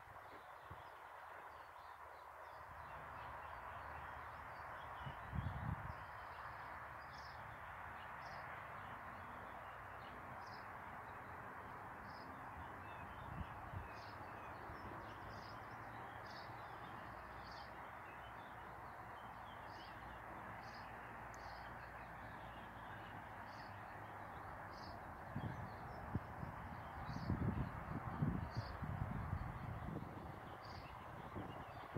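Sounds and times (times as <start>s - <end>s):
distant road traffic hum: 0.0s - 31.9s.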